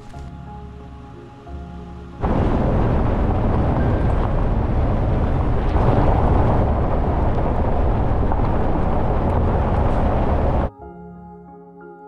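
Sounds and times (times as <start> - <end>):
loud low rumbling: 2.2 - 10.7.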